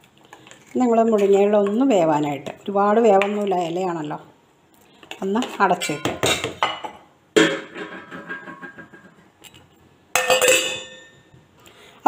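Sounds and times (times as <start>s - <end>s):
metal utensils clanking: 10.2s - 11.2s.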